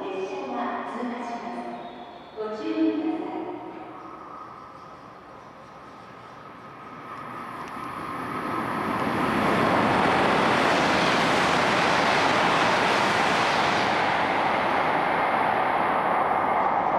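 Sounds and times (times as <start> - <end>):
bullet train rushing past: 1.2 - 16.9.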